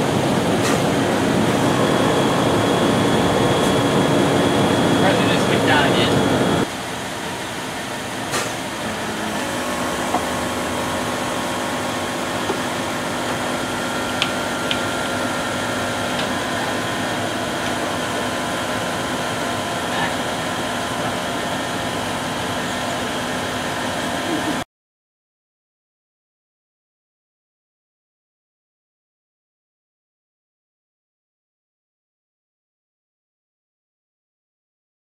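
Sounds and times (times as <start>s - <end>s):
air suspension compressor pumping: 0.0s - 6.6s
steady tone: 0.0s - 6.7s.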